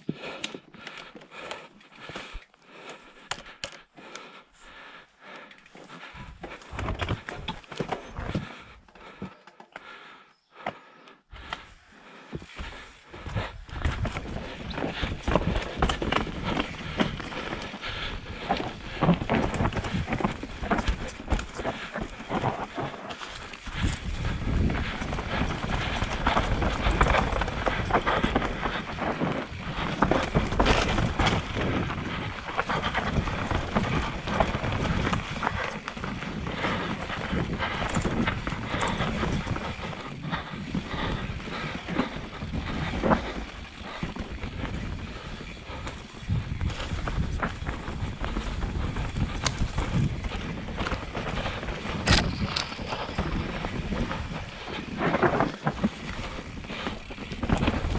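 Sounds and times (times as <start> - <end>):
bike tyres rolling over dirt: 5.7 - 9.3, 11.4 - 57.9
bike clattering over bumps: 12.4 - 57.9.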